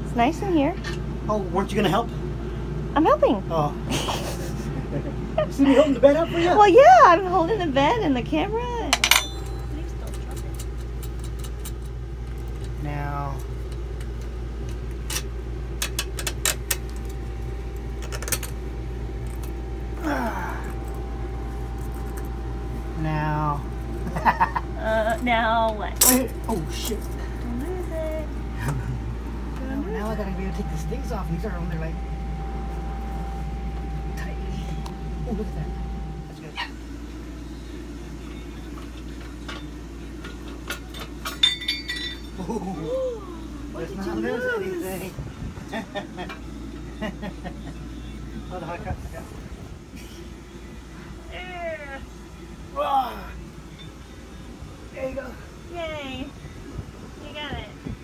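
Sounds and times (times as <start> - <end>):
steady low hum: 0.0 - 58.0
ringing metal clink: 9.0 - 9.8, 41.2 - 42.4.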